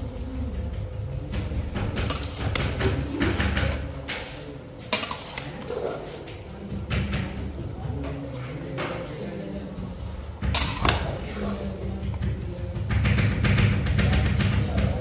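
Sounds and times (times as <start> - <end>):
metal spatula scraping a pot: 2.1 - 3.0, 4.9 - 6.2.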